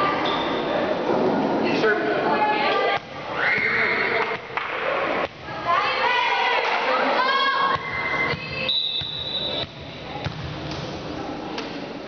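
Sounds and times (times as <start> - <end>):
referee's whistle: 8.2 - 9.7.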